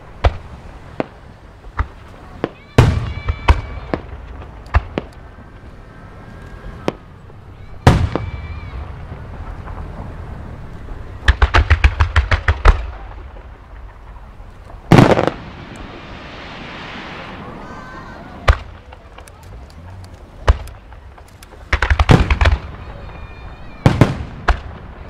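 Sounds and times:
crackling fizz of fireworks: 0:00.0 - 0:25.0
fireworks bangs: 0:00.0 - 0:25.0.

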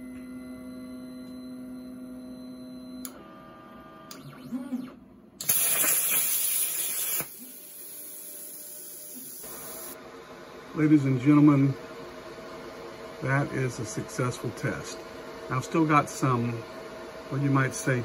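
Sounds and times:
plasma cutter hiss and whistle: 0:05.4 - 0:10.0.

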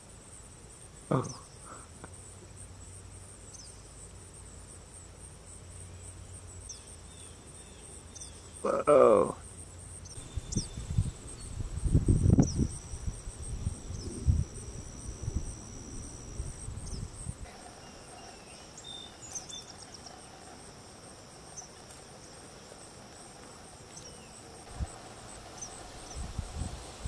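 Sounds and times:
steady insect trill: 0:00.0 - 0:27.0
pulsing insect trill: 0:08.6 - 0:27.0.

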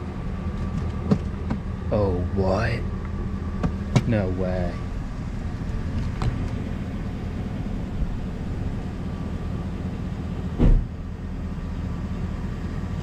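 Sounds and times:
vehicle engine idling: 0:00.0 - 0:13.0
dull thump: 0:10.6 - 0:10.9.

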